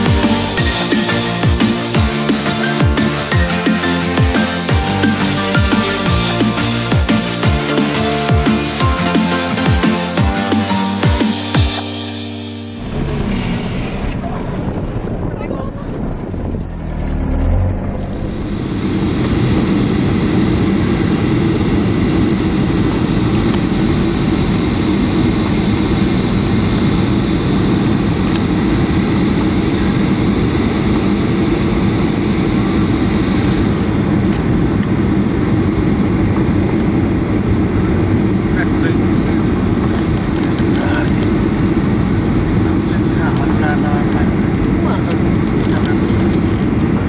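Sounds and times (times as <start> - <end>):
jet airliner cabin roar: 11.2 - 47.0.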